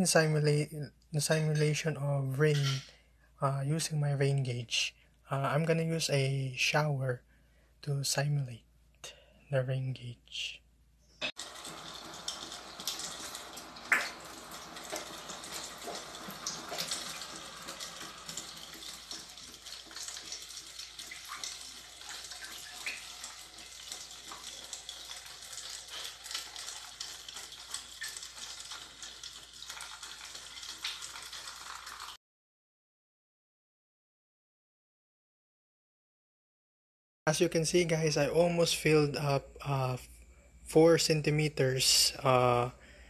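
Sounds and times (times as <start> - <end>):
shower water splashing into bottle: 11.2 - 32.2.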